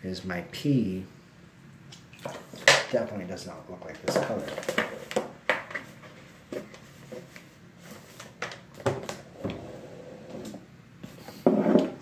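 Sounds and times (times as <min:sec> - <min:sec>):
knocks and clicks of objects handled: 0:04.0 - 0:07.3.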